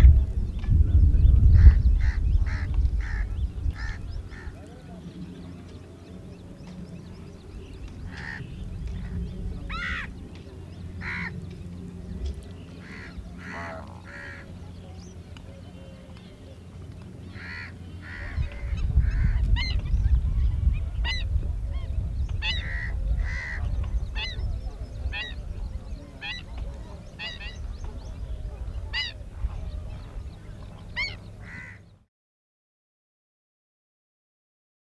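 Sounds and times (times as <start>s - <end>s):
steady low rumble: 0.0s - 32.0s
flamingos calling: 1.6s - 4.6s, 8.1s - 10.1s, 12.8s - 14.5s, 17.3s - 19.9s, 20.7s - 29.3s, 30.2s - 31.9s
flamingos honking: 12.8s - 14.5s, 30.8s - 31.9s.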